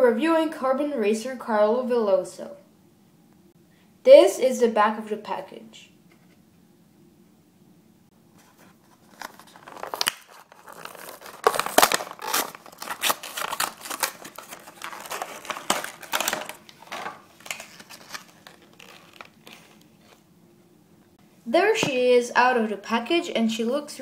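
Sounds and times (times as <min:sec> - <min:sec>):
plastic packaging crinkling: 0:08.4 - 0:20.2.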